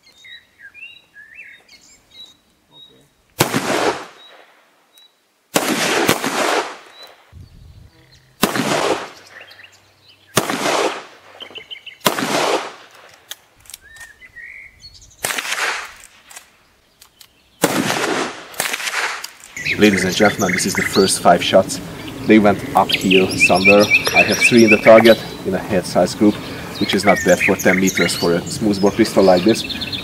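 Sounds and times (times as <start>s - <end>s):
birds chirping: 0.0s - 3.3s, 3.9s - 5.3s, 6.8s - 13.1s, 13.7s - 18.0s, 19.3s - 30.0s
revolver gunshots: 3.4s - 4.5s, 5.5s - 7.0s, 8.4s - 9.4s, 10.3s - 13.1s, 15.2s - 16.4s, 17.6s - 19.3s.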